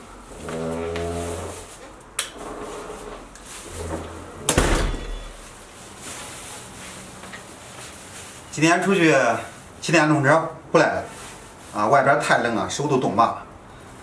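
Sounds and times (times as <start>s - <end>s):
door shutting with heavy thud: 3.9s - 5.6s.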